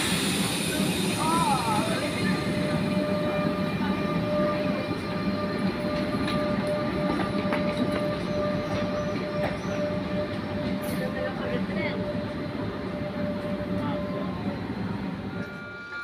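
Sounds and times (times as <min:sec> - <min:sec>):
electric train running noise: 0:00.0 - 0:16.0.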